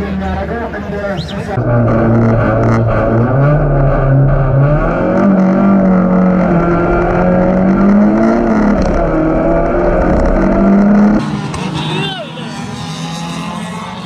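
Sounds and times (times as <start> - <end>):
race car engine accelerating: 1.6 - 14.0.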